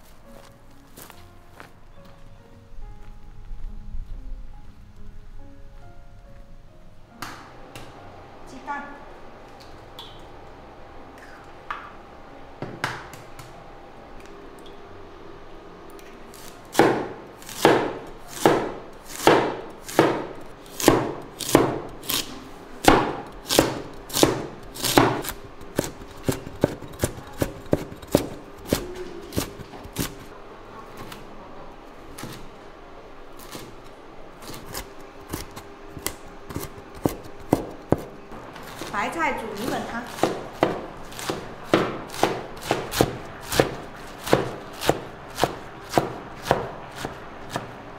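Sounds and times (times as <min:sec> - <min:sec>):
cleaver chopping on wooden board: 0:16.8 - 0:30.2, 0:34.7 - 0:38.1, 0:40.1 - 0:47.7.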